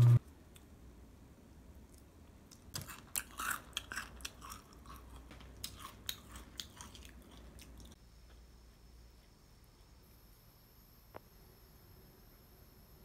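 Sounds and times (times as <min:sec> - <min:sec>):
person chewing with crunches: 0:01.8 - 0:08.0.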